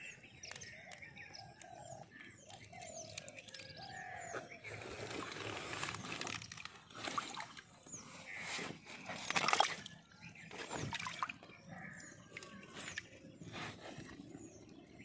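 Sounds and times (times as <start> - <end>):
birds chirping: 0.0 - 15.0
water sloshing and splashing: 3.1 - 15.0.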